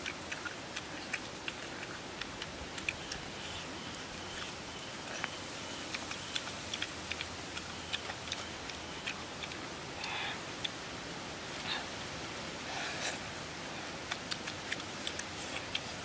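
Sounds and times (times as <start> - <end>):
fruit being pulled and chewed: 0.0 - 10.8, 12.8 - 16.0
background hiss: 0.0 - 16.0.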